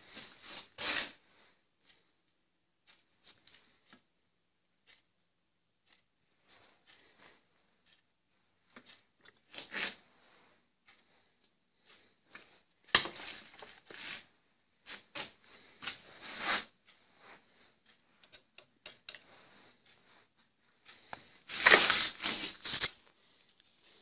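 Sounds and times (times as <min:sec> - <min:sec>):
short metal scrape: 0:00.1 - 0:01.2, 0:16.0 - 0:16.7.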